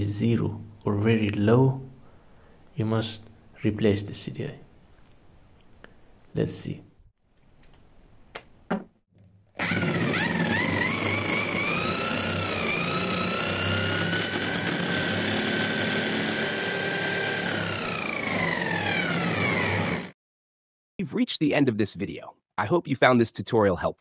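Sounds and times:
electric drill motor whine: 9.6 - 20.2.

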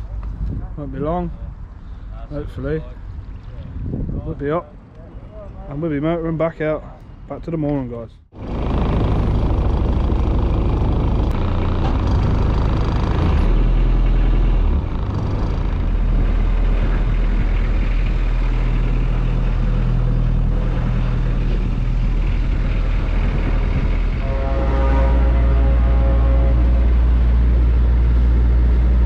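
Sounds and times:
wind noise: 0.0 - 6.0, 8.3 - 29.0
water: 2.6 - 3.9
boat engine droning: 8.4 - 29.0.

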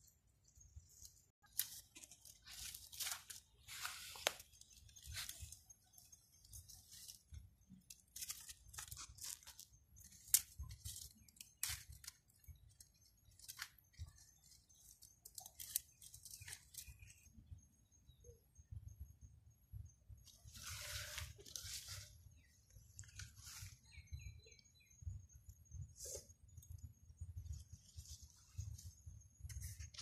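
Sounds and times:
dry twigs crackling and snapping: 0.9 - 17.2.

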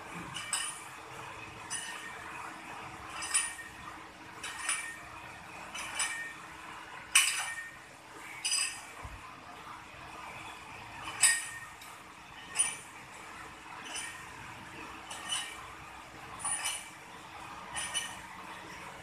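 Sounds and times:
metal weight plates clinking: 0.2 - 0.9, 1.6 - 2.2, 3.1 - 3.8, 4.4 - 5.1, 5.7 - 6.4, 7.1 - 7.8, 8.4 - 8.9, 11.0 - 11.8, 12.4 - 13.0, 13.8 - 14.3, 15.0 - 15.7, 16.3 - 17.0, 17.6 - 18.8.

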